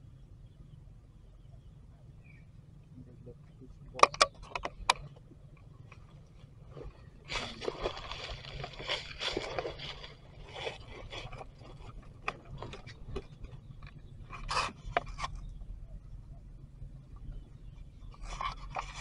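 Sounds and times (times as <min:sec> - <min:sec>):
dry leaves rustling and crackling: 0:06.7 - 0:13.1.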